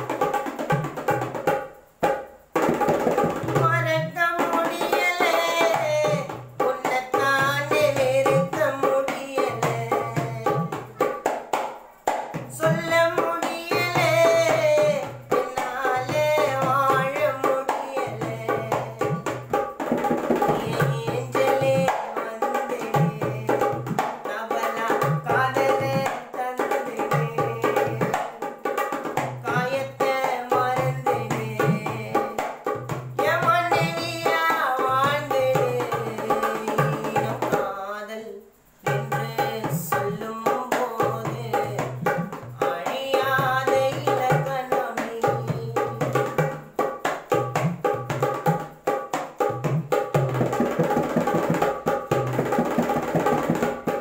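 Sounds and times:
hand drum rhythm: 0.0s - 54.0s
person singing: 3.3s - 11.3s, 12.3s - 19.5s, 20.3s - 28.8s, 29.4s - 46.6s.

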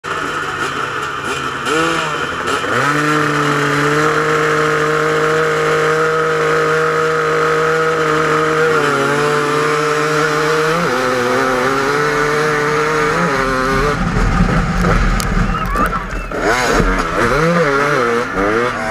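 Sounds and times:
motorcycle engine revving: 0.0s - 18.9s
other motorcycle engines running: 0.0s - 18.9s.

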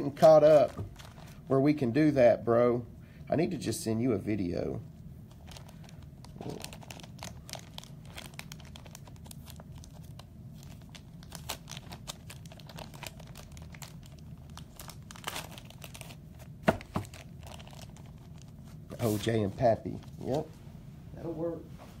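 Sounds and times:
wrappers crinkling and rustling: 0.0s - 1.5s, 5.3s - 20.5s
steady low hum: 0.0s - 22.0s.

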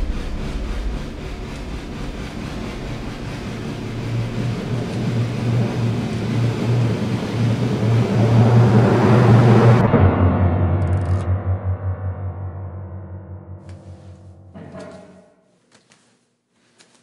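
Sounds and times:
rising rumble: 0.0s - 14.3s
dark ambient drone: 0.0s - 15.4s.

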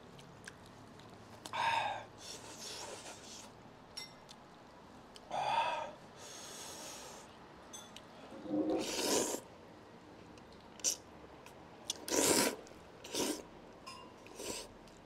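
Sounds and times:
man blowing on food: 8.4s - 9.5s, 12.1s - 13.4s.

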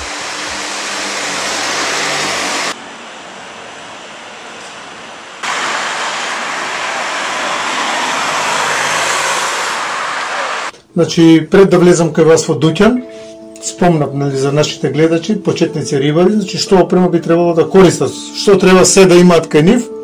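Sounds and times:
steady rushing noise: 0.0s - 10.7s.

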